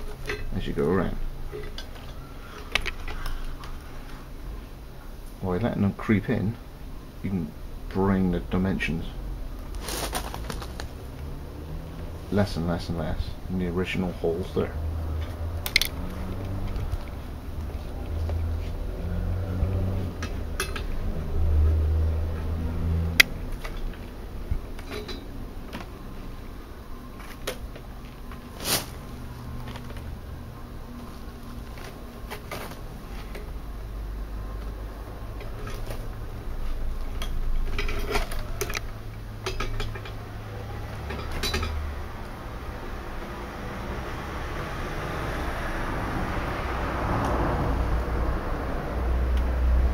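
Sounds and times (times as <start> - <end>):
willow rods clicking and rubbing: 15.2 - 18.8.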